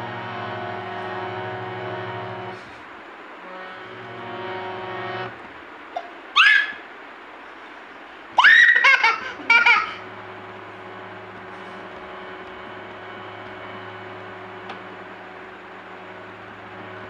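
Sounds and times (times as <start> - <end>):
harmonium holding a chord: 0.0 - 2.8, 3.4 - 5.7, 9.3 - 17.0
baby girl laughing: 6.0 - 6.8, 8.4 - 10.0.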